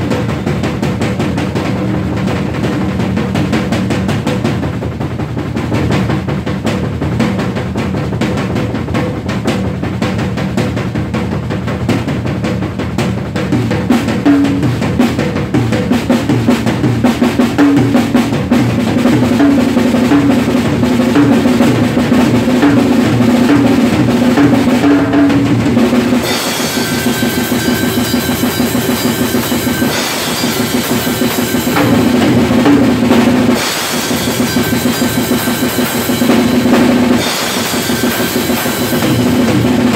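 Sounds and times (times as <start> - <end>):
fast drum rolls and fills: 0.0 - 39.9
cymbals crashing: 22.4 - 39.9.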